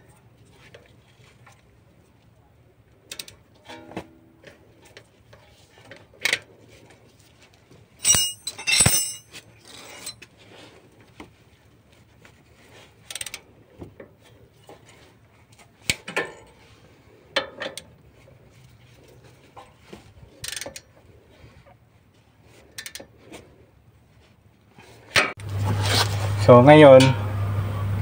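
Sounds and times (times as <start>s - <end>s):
socket ratchet metal clinks: 8.0s - 9.3s.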